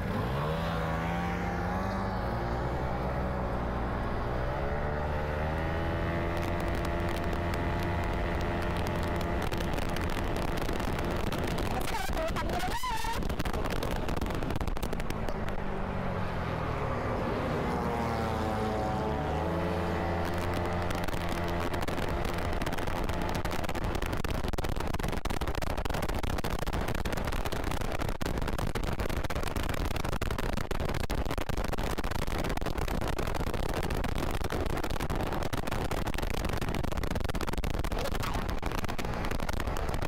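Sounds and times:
scooter engine: 0.0s - 12.8s, 14.9s - 24.0s
road noise: 0.0s - 40.0s
rush of wind: 0.0s - 40.0s.

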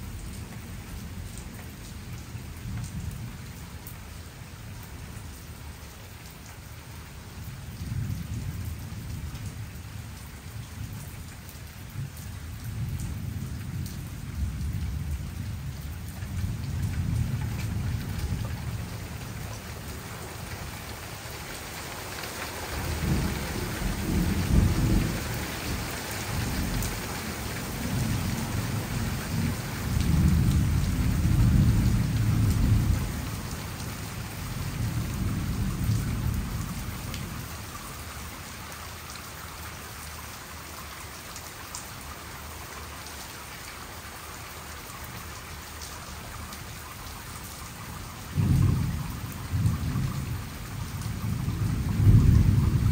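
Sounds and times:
steady rain falling: 0.0s - 52.9s
rolling thunder: 22.8s - 25.8s, 48.4s - 52.9s.

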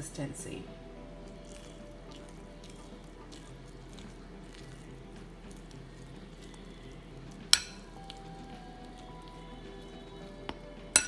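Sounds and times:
spoon stirring thick batter: 0.2s - 11.0s
spoon clinking on bowl: 7.5s - 11.0s.

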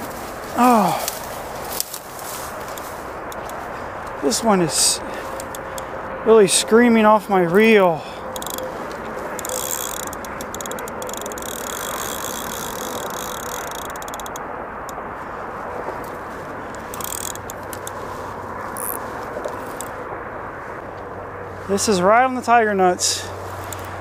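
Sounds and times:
rushing background noise: 0.0s - 24.0s
fishing reel drag clicking: 5.4s - 5.9s, 8.4s - 8.6s, 9.4s - 15.0s, 16.7s - 18.0s, 18.8s - 20.0s, 23.6s - 24.0s.

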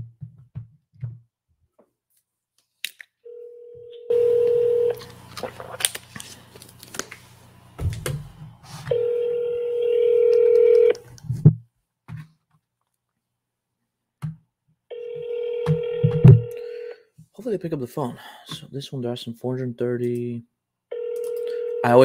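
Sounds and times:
telephone ringback tone: 3.3s - 5.0s, 8.9s - 11.0s, 14.9s - 16.9s, 20.9s - 22.0s.

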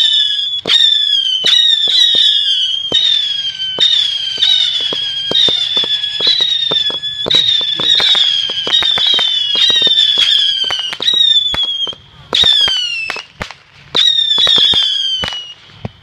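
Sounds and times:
firework whistles: 0.0s - 16.0s
firework pops: 3.8s - 16.0s.

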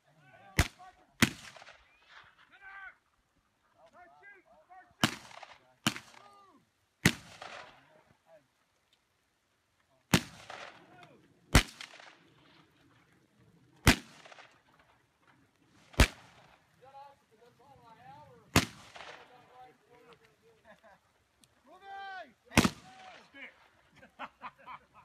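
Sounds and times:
gunshots with echo: 18.5s - 19.3s.

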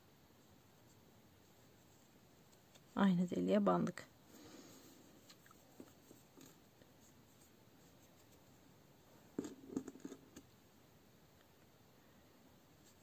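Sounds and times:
soft rustles and knocks: 5.2s - 8.5s.

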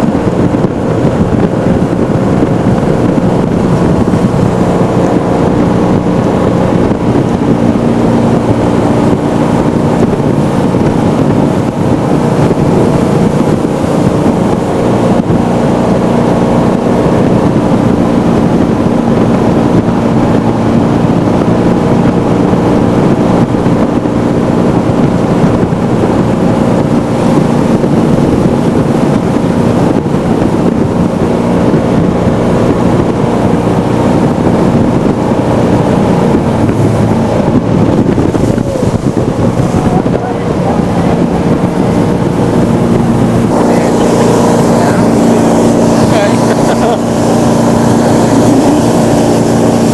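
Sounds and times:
boat engine running: 0.0s - 49.9s
water rushing past hull: 0.0s - 49.9s
wind buffeting microphone: 0.0s - 49.9s.

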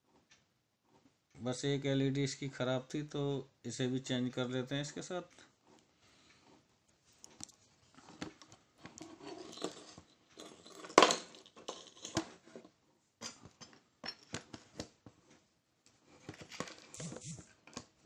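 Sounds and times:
small tools clicking and clinking: 8.2s - 14.8s.

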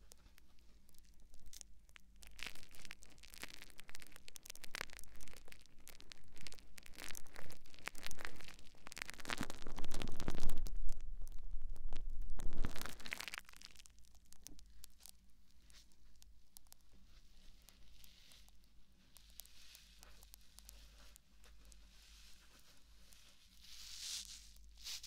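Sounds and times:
sponge squeezed and rubbed: 20.8s - 25.0s.

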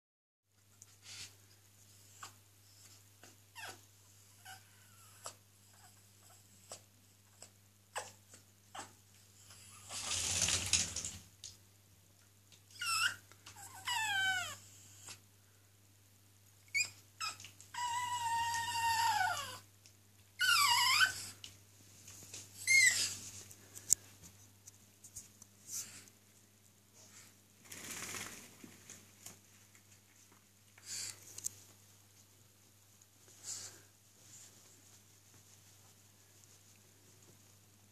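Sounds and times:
puppy whining: 2.0s - 10.2s, 12.6s - 15.2s, 16.6s - 19.7s, 20.4s - 21.5s, 22.6s - 23.3s.

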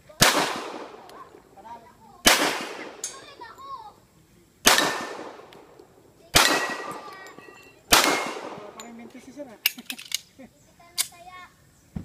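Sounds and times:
handgun shots echoing: 0.2s - 1.4s, 2.2s - 3.3s, 4.7s - 10.2s
steel targets ringing: 6.4s - 9.0s.

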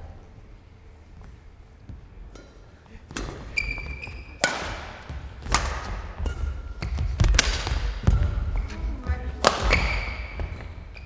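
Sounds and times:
shoes squeaking on court floor: 1.1s - 11.0s
racket striking shuttlecock: 2.3s - 8.7s, 9.4s - 10.7s.

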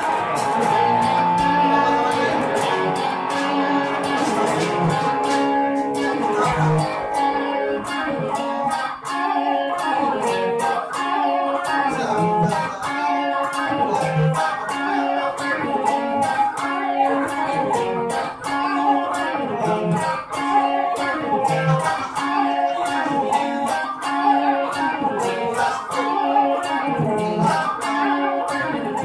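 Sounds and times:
drum kit beat: 0.0s - 7.5s
electric guitars playing: 0.0s - 29.0s.

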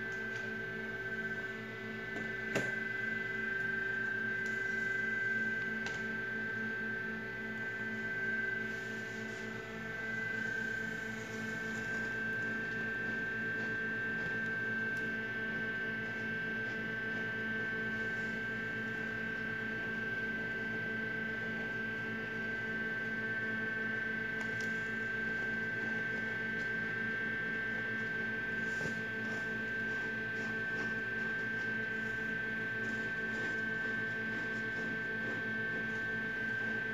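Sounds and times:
high-pitched whine: 0.0s - 15.8s
electrical hum: 0.0s - 36.9s.

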